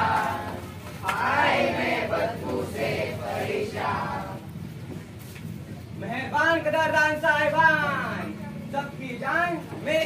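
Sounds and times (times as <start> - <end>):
group chanting in unison: 0.0 - 4.5.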